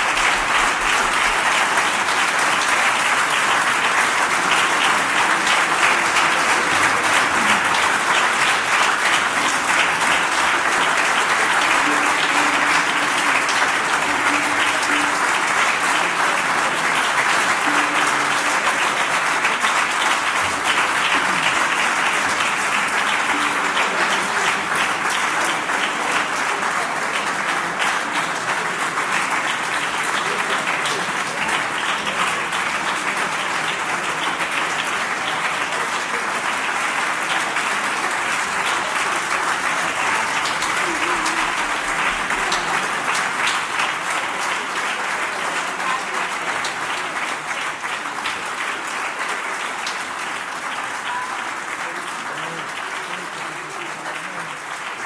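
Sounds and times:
audience applauding: 0:00.0 - 0:55.0.

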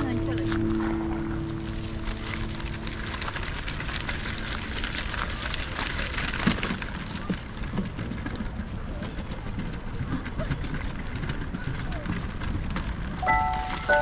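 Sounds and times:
footsteps crunching on gravel: 0:00.0 - 0:08.0.

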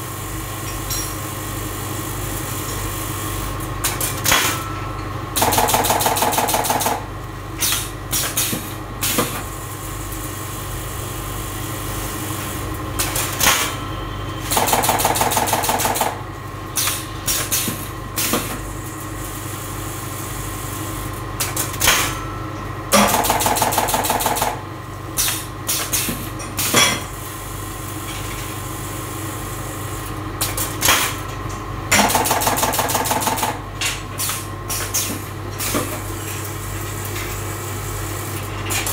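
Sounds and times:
rapid machine rattling: 0:14.5 - 0:16.2.

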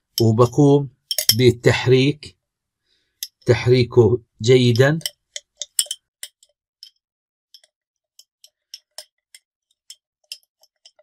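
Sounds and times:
metal spoon clinking in glass jar: 0:01.0 - 0:01.4, 0:04.8 - 0:07.0, 0:07.6 - 0:11.0.

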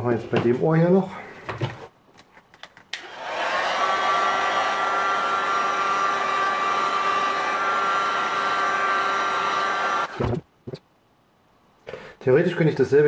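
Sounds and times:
heat gun whining blow: 0:03.0 - 0:10.3.

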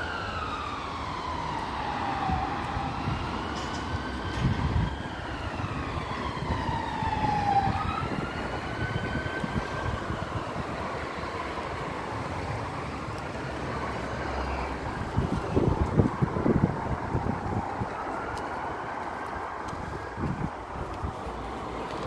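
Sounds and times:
distant siren wailing: 0:00.0 - 0:22.0
traffic rumble: 0:00.0 - 0:22.0.

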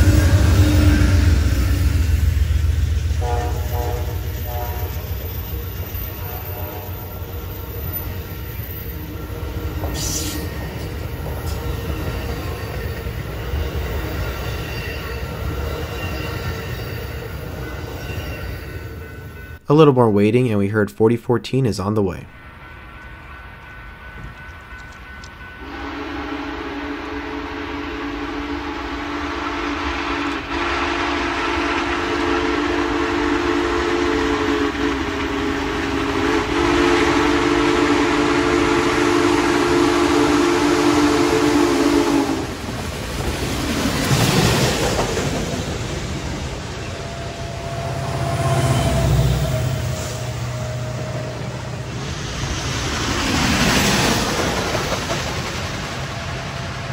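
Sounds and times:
rushing rumble with low drone: 0:00.0 - 0:12.4
deep steam whistle: 0:00.0 - 0:13.8, 0:25.5 - 0:42.8, 0:46.6 - 0:52.2.

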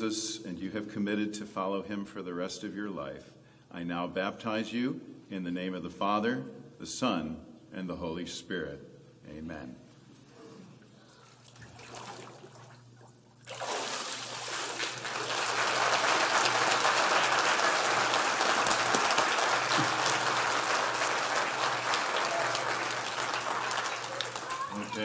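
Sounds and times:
faint water sounds: 0:10.5 - 0:15.0
congregation applauding: 0:14.8 - 0:25.0.

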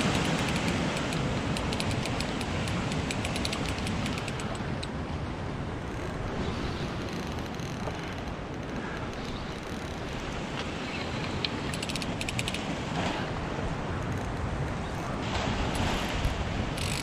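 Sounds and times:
quick ticks: 0:00.0 - 0:04.9
surf wash: 0:00.0 - 0:07.2, 0:08.0 - 0:17.0.

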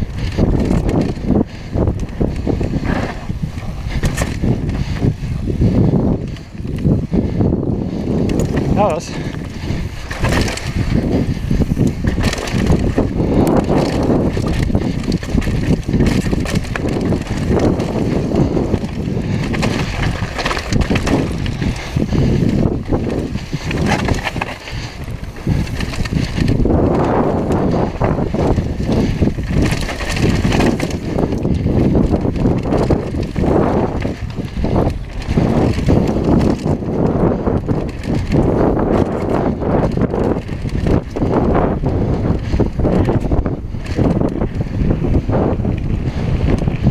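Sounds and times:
bike rattling and knocking: 0:00.0 - 0:46.9
wind rumbling on microphone: 0:00.0 - 0:46.9
tyres scrabbling on gravel: 0:08.1 - 0:41.8.

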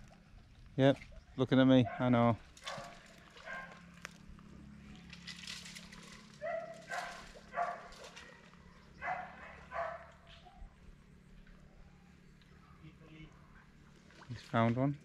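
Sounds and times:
steady low hum: 0:00.0 - 0:15.0
dog barking: 0:01.8 - 0:03.8, 0:06.4 - 0:10.7.

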